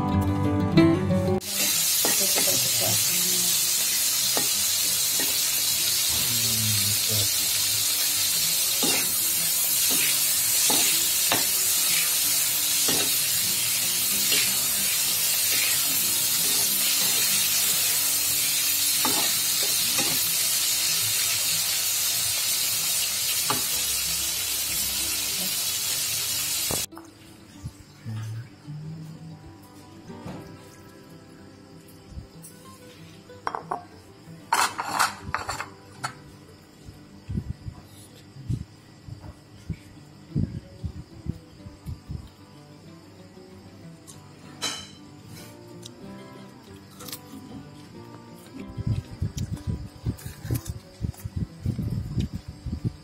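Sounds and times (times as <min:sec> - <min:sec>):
shrimp sizzling in hot oil: 0:01.4 - 0:27.0, 0:44.6 - 0:45.5.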